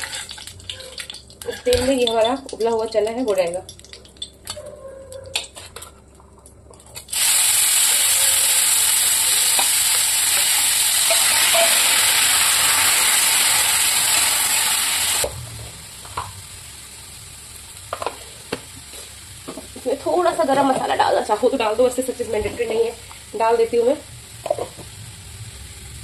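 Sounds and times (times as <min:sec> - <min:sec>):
spatula scraping a pan: 0:00.0 - 0:02.1
chickpeas sizzling in hot oil: 0:00.0 - 0:04.6, 0:06.9 - 0:26.0.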